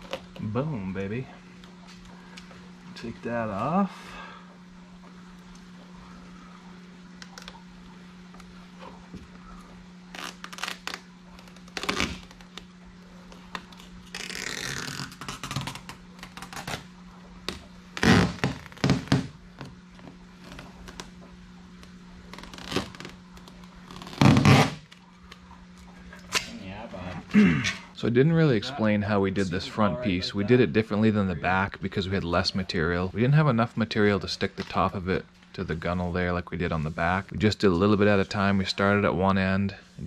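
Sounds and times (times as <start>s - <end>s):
tape peeling: 0.0s - 0.5s, 7.2s - 7.6s, 8.3s - 26.6s
low steady hum: 0.0s - 40.0s
paper crinkling and rustling: 10.1s - 16.9s.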